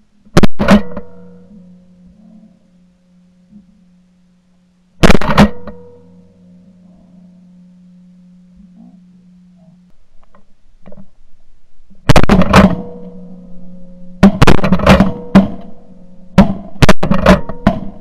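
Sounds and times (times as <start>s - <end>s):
shotgun blasts: 5.0s - 5.9s, 12.1s - 13.0s, 14.2s - 15.6s.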